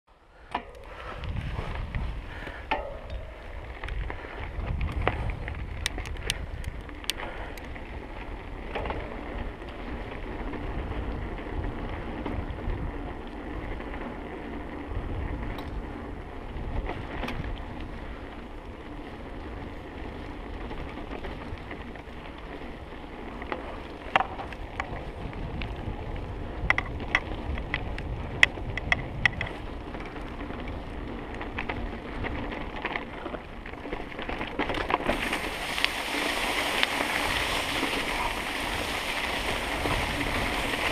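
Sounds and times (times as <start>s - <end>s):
bike tyres rolling on gravel: 0.3s - 40.9s
wind buffeting microphone: 0.7s - 40.9s
clicks and rattles over stones: 4.7s - 7.8s, 23.3s - 25.0s, 26.6s - 40.9s.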